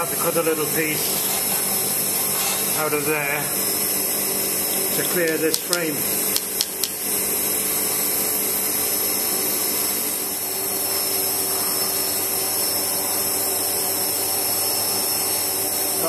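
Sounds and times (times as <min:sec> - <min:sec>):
faint motor hum: 0:00.0 - 0:16.0.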